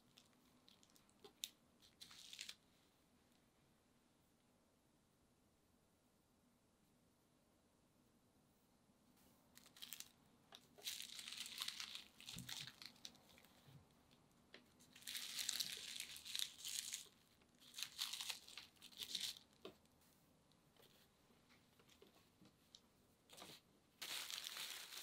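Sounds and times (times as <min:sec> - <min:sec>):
paper and cloth crinkling: 0:00.0 - 0:02.6, 0:09.5 - 0:14.2, 0:14.8 - 0:20.0, 0:21.8 - 0:25.0.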